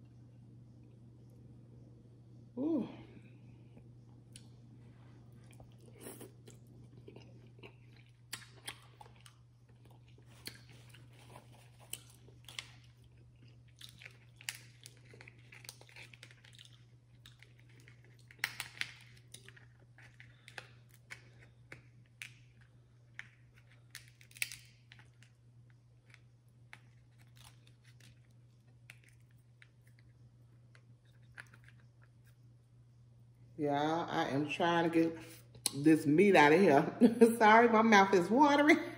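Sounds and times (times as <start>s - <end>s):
steady low hum: 0.0s - 38.9s
chewing: 3.7s - 25.4s, 26.0s - 32.5s
shells cracking: 17.7s - 22.5s.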